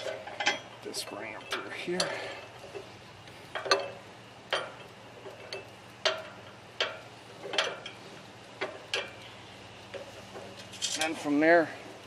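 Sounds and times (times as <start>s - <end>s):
metal bolts clinking: 0.0s - 2.2s.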